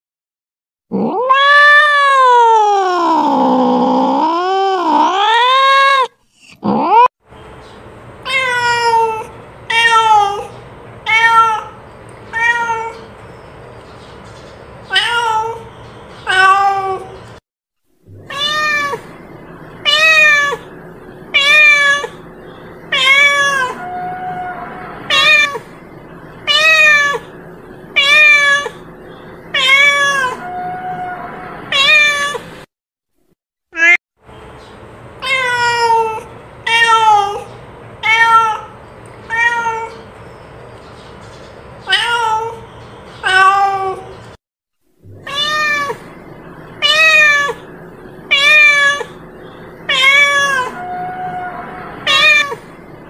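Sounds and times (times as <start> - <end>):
cat meowing: 0.9 - 7.1, 8.3 - 10.5, 11.1 - 13.1, 14.9 - 17.2, 18.1 - 19.2, 19.8 - 20.7, 21.3 - 22.2, 22.9 - 25.7, 26.5 - 28.9, 29.5 - 32.5, 33.8 - 34.0, 35.2 - 40.0, 41.8 - 42.6, 43.2 - 44.1, 45.2 - 46.1, 46.8 - 47.7, 48.3 - 49.2, 49.8 - 52.8.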